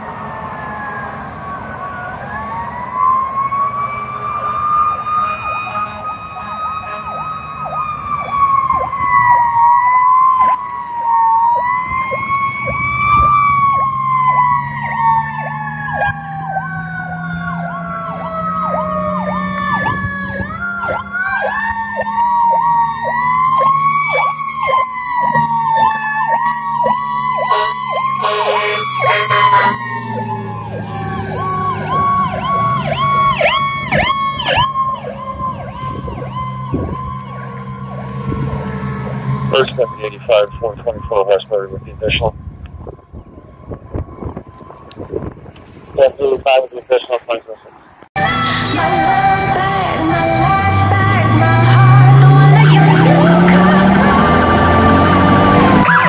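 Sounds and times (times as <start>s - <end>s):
mechanical siren wailing: 0.0s - 47.1s, 48.2s - 56.0s
electronic siren yelping: 0.0s - 47.4s, 48.2s - 56.0s
diesel engine drone: 0.0s - 56.0s
air horn blast: 27.1s - 30.0s.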